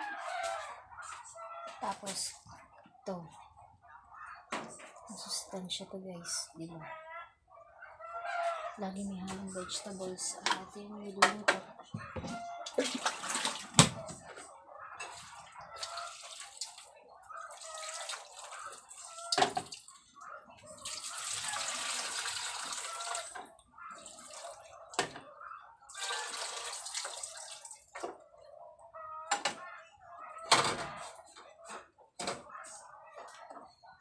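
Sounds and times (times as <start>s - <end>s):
water pouring and splashing: 12.7s - 13.8s, 15.0s - 20.0s, 20.8s - 25.0s, 25.9s - 28.0s.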